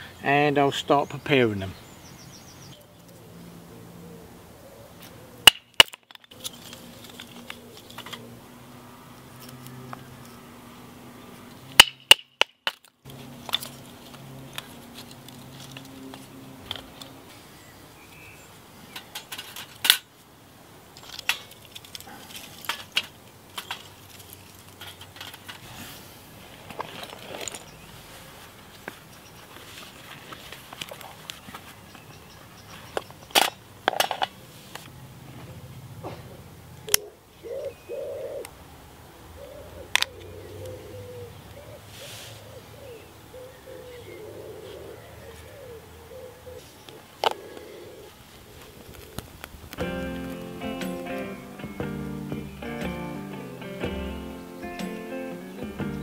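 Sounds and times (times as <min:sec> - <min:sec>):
sticks clattering: 0:05.4 - 0:08.2, 0:11.8 - 0:17.1.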